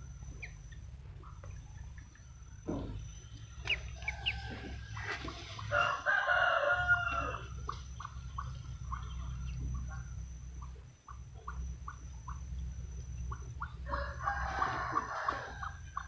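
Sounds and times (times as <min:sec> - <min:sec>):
ducklings peeping: 0:00.0 - 0:16.0
rooster crowing: 0:03.3 - 0:07.7, 0:13.8 - 0:16.0.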